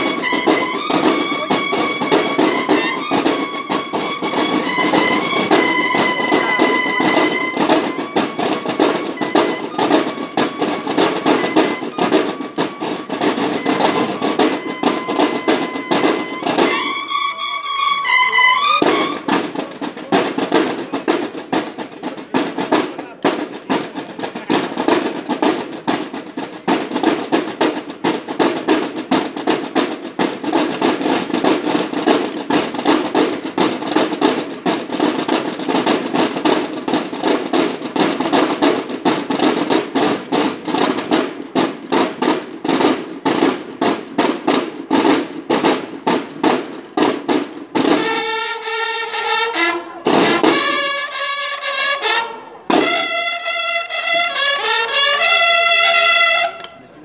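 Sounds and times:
bugles brass call: 0.0s - 21.0s, 47.8s - 56.9s
snare drums marching cadence: 0.0s - 57.0s.

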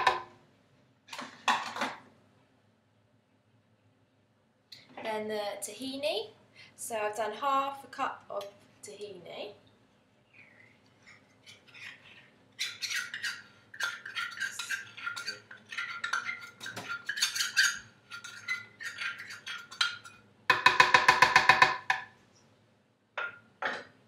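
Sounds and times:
metal spoon scraping jug rim: 11.5s - 20.2s.

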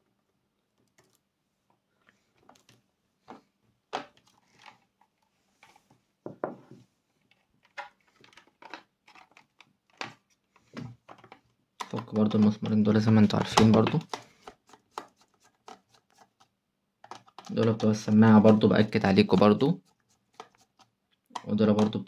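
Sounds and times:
tools clicking and tapping: 11.1s - 19.5s.

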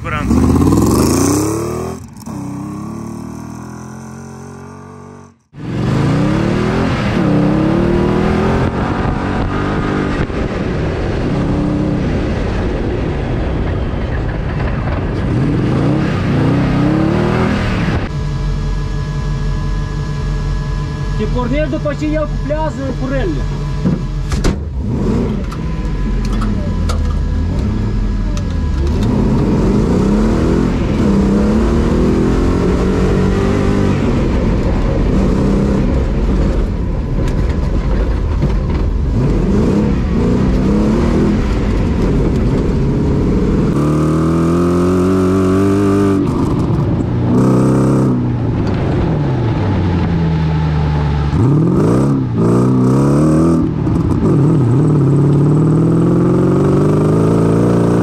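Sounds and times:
engine revving hard: 0.0s - 10.2s, 24.8s - 25.5s, 28.8s - 34.4s.

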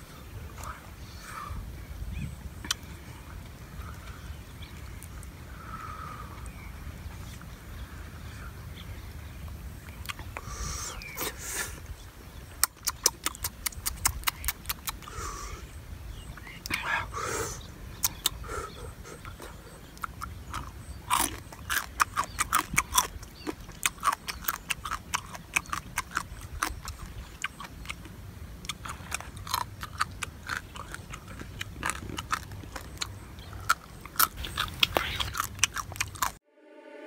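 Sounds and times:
person chewing crunchy crab: 12.6s - 15.2s, 18.0s - 18.5s, 19.1s - 36.4s.

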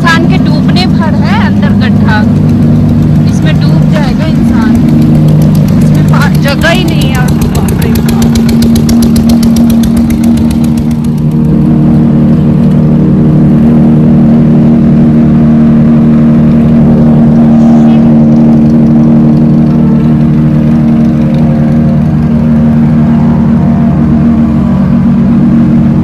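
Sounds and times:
motorbike engine running: 0.0s - 26.0s
rapid even knocking: 0.6s - 11.7s.

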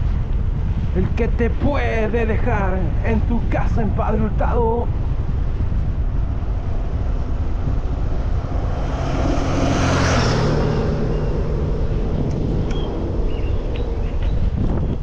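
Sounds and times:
wind buffeting microphone: 0.0s - 15.0s
motor vehicle passing: 4.9s - 15.0s.

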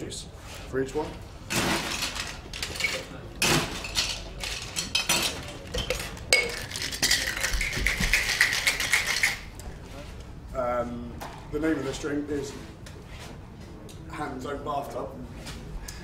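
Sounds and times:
cocktail shaker clinking and rattling: 3.8s - 9.5s.

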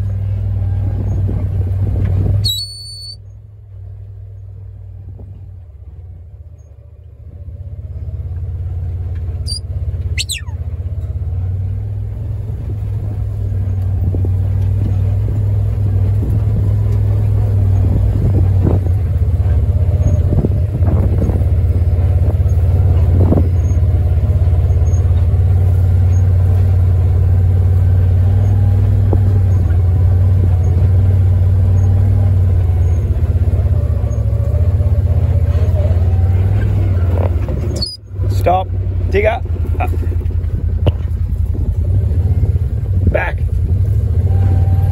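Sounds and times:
farm vehicle engine humming: 0.0s - 44.9s
high falling whistles: 2.4s - 3.2s, 9.5s - 10.6s.

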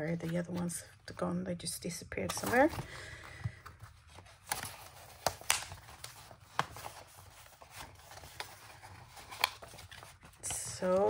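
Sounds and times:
paper rustling: 2.2s - 11.0s.

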